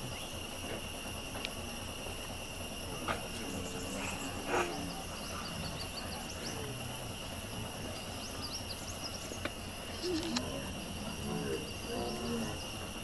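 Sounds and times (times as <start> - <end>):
insects droning: 0.0 - 13.0
bird chirps: 3.4 - 6.8, 7.8 - 10.3.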